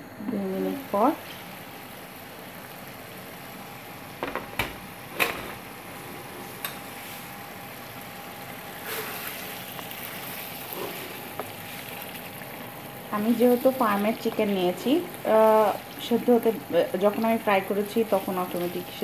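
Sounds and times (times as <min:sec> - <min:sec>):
curry simmering and sizzling: 0:00.2 - 0:19.0
wooden spatula stirring: 0:08.8 - 0:12.3.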